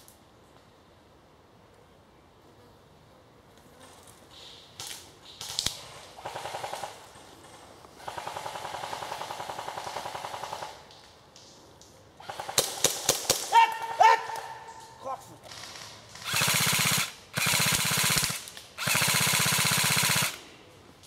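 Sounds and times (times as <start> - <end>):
airsoft rifles firing full auto: 6.2 - 7.1, 8.0 - 10.8, 12.2 - 13.5, 15.5 - 20.4.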